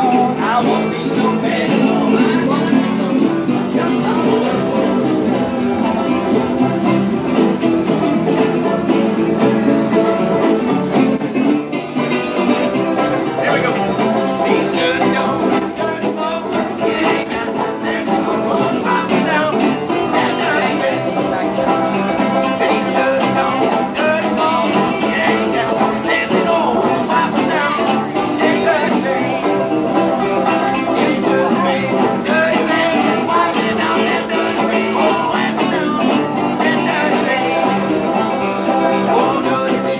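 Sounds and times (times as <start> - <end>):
banjos and guitars playing bluegrass: 0.0 - 39.9.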